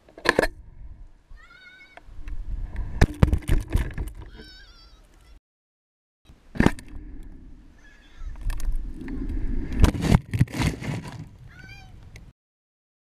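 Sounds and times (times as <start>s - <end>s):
wind buffeting microphone: 0.5s - 4.4s, 6.8s - 10.3s.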